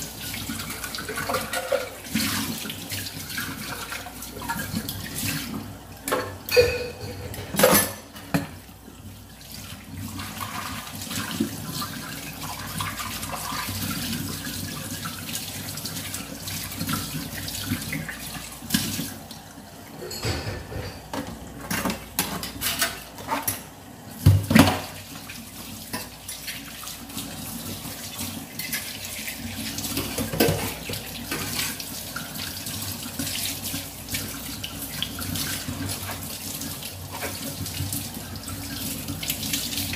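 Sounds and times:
running water: 0:00.0 - 0:39.9.

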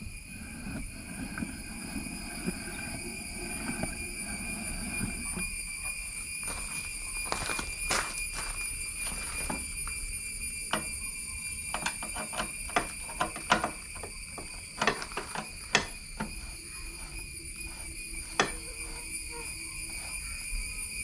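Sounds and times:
high-pitched drone: 0:00.0 - 0:21.0
sharp clicks and knocks: 0:10.6 - 0:16.4, 0:18.3 - 0:19.0.

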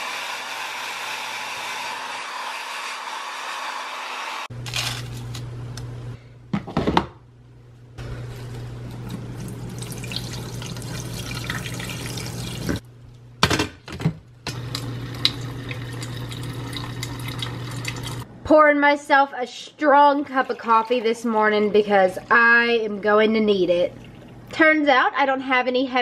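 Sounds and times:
water pouring into coffee maker: 0:09.3 - 0:12.8, 0:14.5 - 0:18.2, 0:23.9 - 0:24.5.

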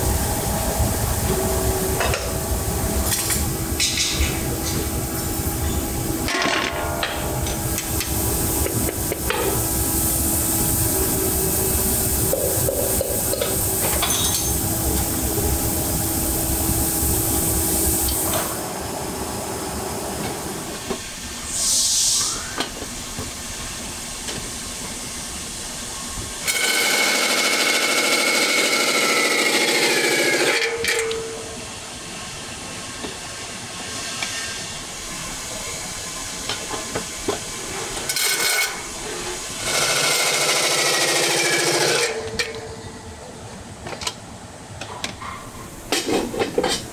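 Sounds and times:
workshop machine noise: 0:00.0 - 0:25.0, 0:25.8 - 0:46.9
short hiss: 0:21.5 - 0:22.6.

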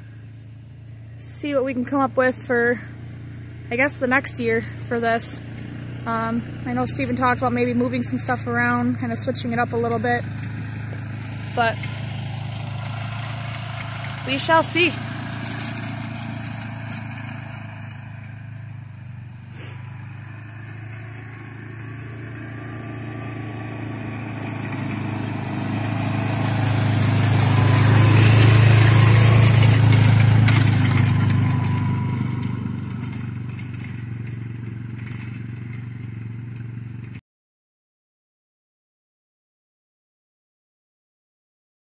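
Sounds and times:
quad bike engine passing: 0:00.0 - 0:37.2.

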